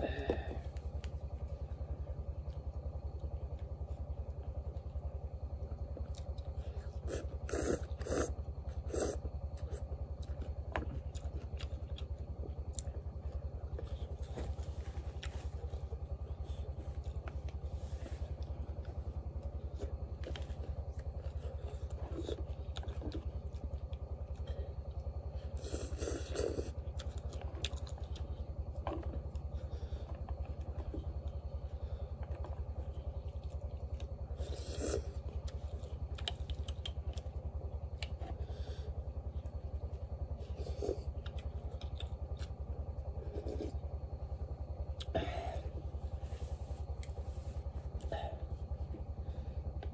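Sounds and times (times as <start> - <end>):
slurping noodles: 7.0 - 9.7.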